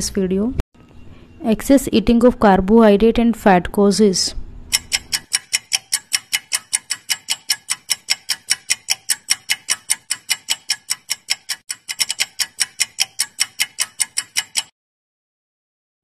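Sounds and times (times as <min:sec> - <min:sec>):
fast clock ticking: 0:04.7 - 0:14.7.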